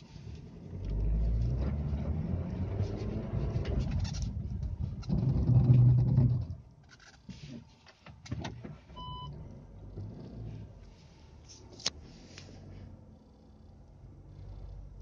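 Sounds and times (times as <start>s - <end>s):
low rumble of engine and tyres: 0.0s - 15.0s
short electronic car beep: 9.0s - 9.3s.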